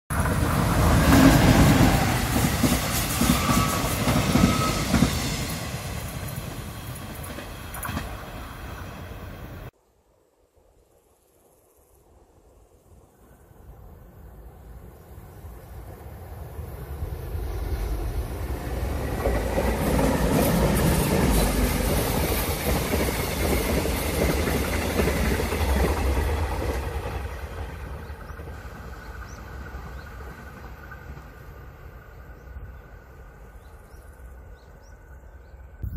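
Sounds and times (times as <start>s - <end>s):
train wheels rumbling on rails: 0.1s - 9.7s, 15.8s - 34.8s.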